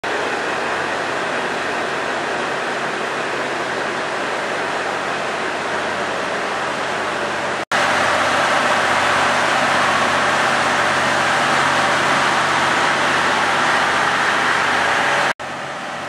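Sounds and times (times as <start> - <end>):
diesel engine and fans humming: 0.0 - 16.0.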